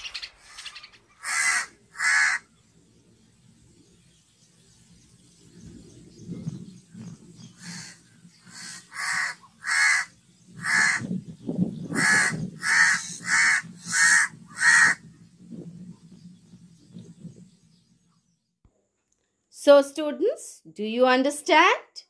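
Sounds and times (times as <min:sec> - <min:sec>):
crow cawing: 0:00.5 - 0:02.5, 0:07.6 - 0:11.1, 0:11.9 - 0:15.0.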